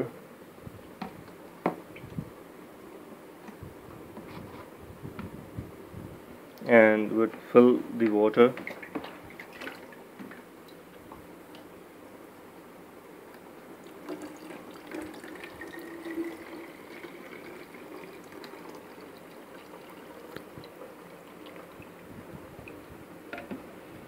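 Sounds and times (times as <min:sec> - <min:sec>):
water pouring into plastic bottle: 0:13.8 - 0:22.0.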